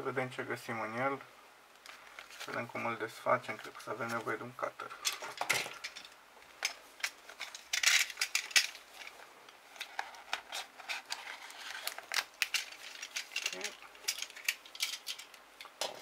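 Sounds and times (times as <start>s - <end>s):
plastic packaging crackling: 5.2s - 15.7s.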